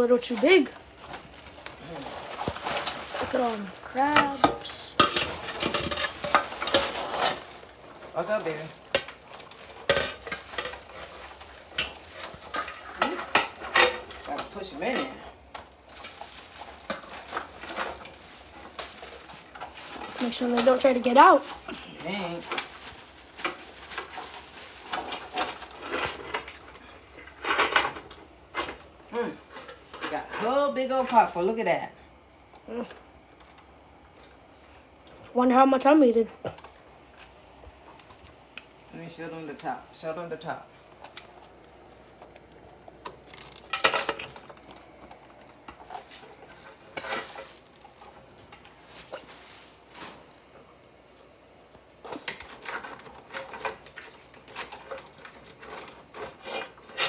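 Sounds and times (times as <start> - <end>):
pot and lid rattling: 0.2 - 28.8, 43.0 - 48.2
crab shells scraping and clacking: 0.2 - 30.6, 40.9 - 49.3, 52.0 - 57.0.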